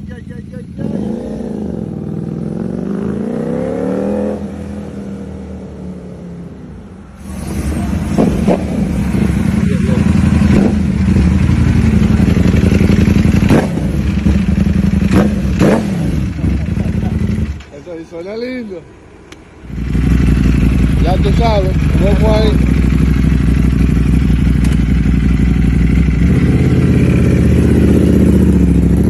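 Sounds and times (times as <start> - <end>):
motorcycle throttle blips: 19.3 - 29.0
motorcycle engine pulling away: 19.7 - 29.0.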